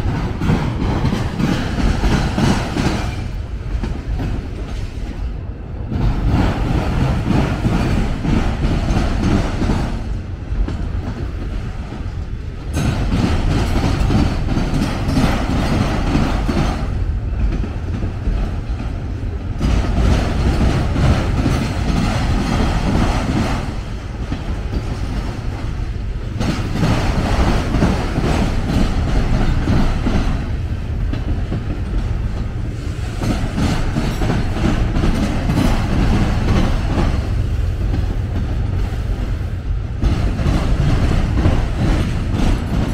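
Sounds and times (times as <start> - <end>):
clickety-clack over rail joints: 0.0 - 42.9
train wheels rumbling on rails: 0.0 - 42.9.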